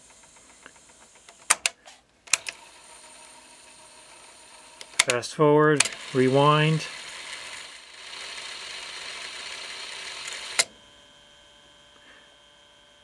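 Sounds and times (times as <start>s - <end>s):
cassette deck rewinding whirr: 0.0s - 13.0s
tape end click: 4.8s - 5.2s
faint hum: 10.3s - 13.0s.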